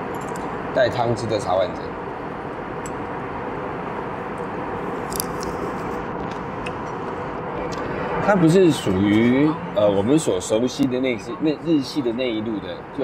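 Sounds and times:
airliner cabin engine hum: 0.0s - 13.0s.

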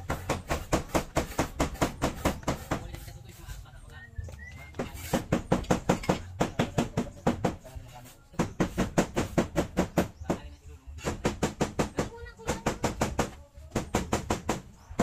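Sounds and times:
rapid even knocking: 4.7s - 7.7s.

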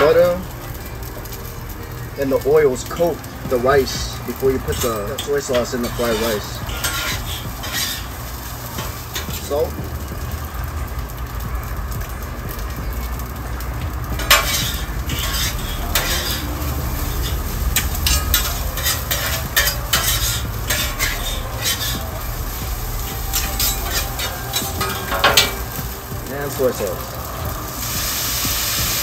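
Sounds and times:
rice sizzling on griddle: 0.0s - 29.0s
metal spatulas clacking and scraping: 4.7s - 8.1s, 14.2s - 16.5s, 17.2s - 22.0s, 23.4s - 25.6s.

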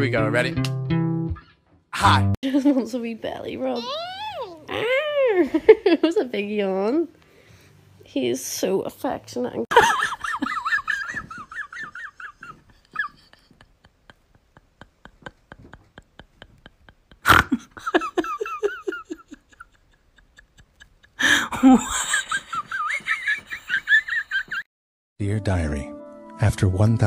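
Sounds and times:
person laughing: 9.7s - 24.6s.

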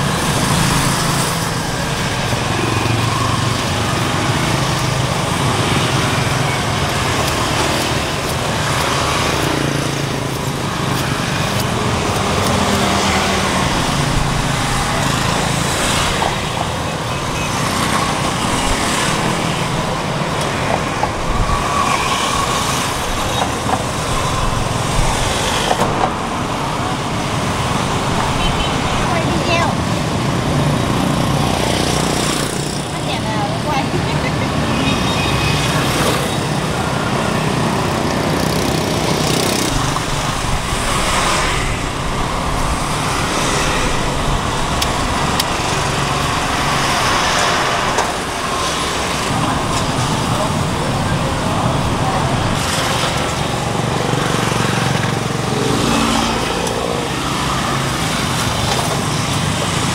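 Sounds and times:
road traffic passing: 0.0s - 59.9s.

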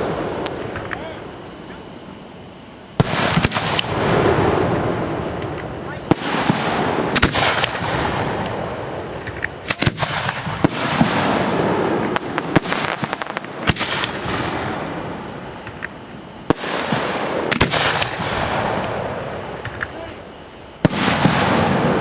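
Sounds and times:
firework shells bursting: 3.0s - 20.0s.

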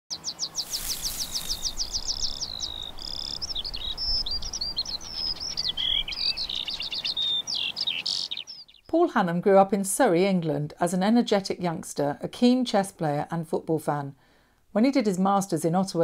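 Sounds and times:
bird singing: 0.1s - 9.0s.

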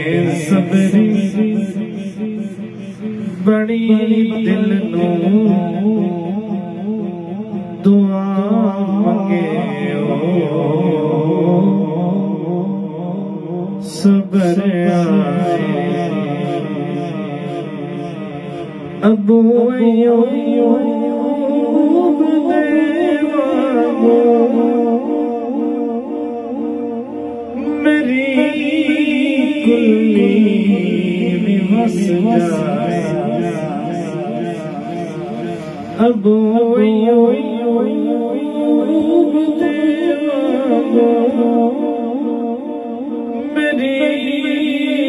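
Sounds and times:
person singing: 0.0s - 7.1s, 13.8s - 45.0s
vocal music through speakers: 0.0s - 45.0s.

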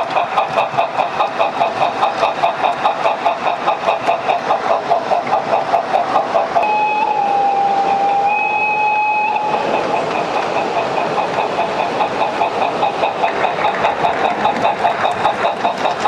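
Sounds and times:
model steam locomotive chuffing: 0.0s - 16.0s
steam whistle blast: 6.6s - 9.6s.

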